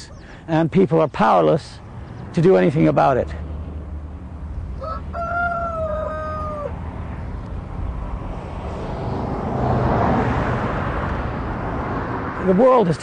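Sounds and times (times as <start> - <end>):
broad rushing noise: 3.3 - 13.0
rooster crowing: 4.8 - 6.8.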